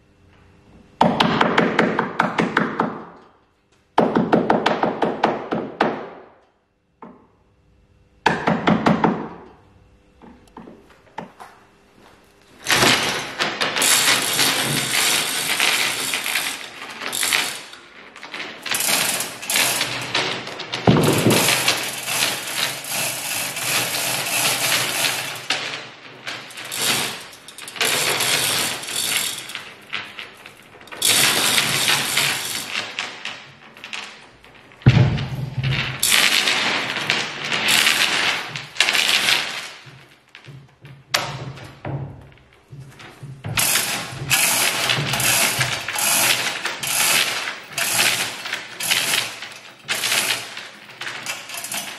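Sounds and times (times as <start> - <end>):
chains rattling through hoists: 12.6 - 34.9, 35.7 - 39.8, 43.6 - 51.9
loud knock: 20.9 - 21.7, 34.9 - 36.2.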